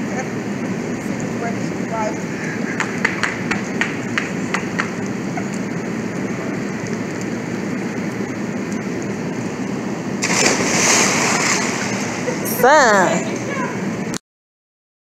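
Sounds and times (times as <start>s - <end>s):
low background rush: 0.0s - 14.2s
splash of person jumping into pool: 10.2s - 12.5s.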